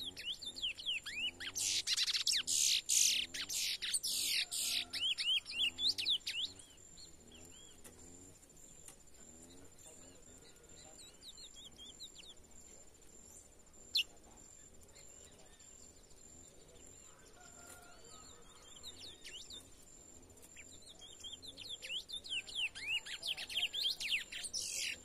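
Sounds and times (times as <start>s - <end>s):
finch singing: 0.0s - 7.9s, 13.8s - 16.2s, 18.3s - 25.0s.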